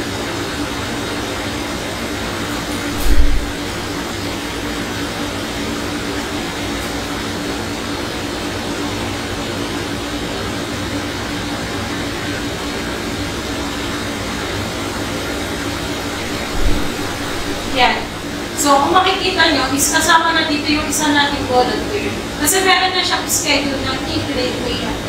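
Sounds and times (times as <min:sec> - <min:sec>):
steady hiss: 0:02.3 - 0:05.4, 0:12.3 - 0:20.2
low even hum: 0:02.6 - 0:04.8, 0:16.0 - 0:22.0.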